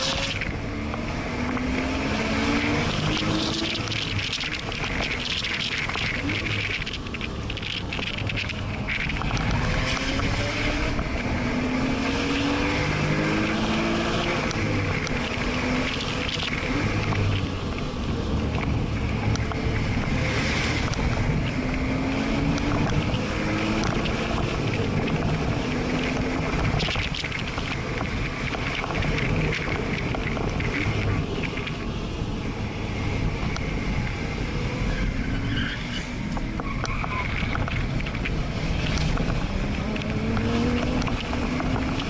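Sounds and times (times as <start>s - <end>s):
car engine revving: 0.0s - 42.0s
wind and road noise: 0.0s - 42.0s.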